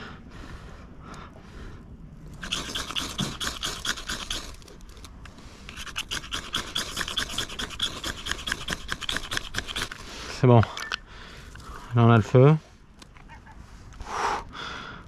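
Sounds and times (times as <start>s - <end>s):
knife scraping a fire-starting rod: 2.4s - 11.6s.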